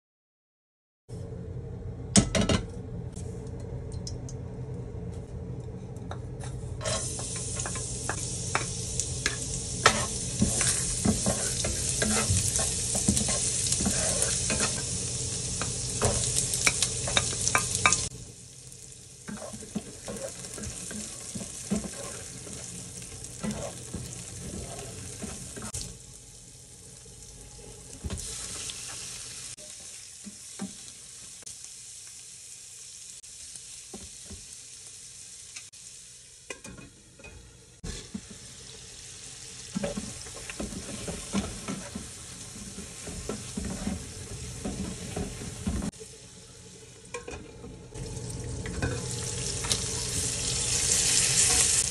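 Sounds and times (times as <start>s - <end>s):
food frying in oil: 6.8s - 36.9s, 37.8s - 51.9s
wooden spatula scraping a pan: 9.3s - 14.9s, 19.3s - 25.8s, 37.8s - 38.4s, 39.7s - 45.9s.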